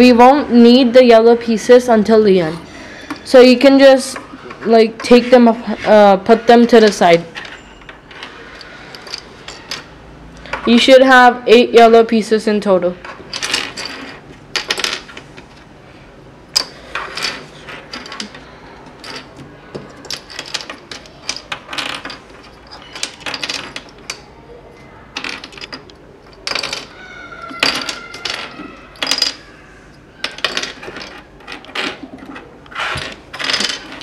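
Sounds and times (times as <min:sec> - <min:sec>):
plastic pieces clattering on table: 0:16.6 - 0:24.2, 0:25.2 - 0:29.5, 0:30.2 - 0:34.0.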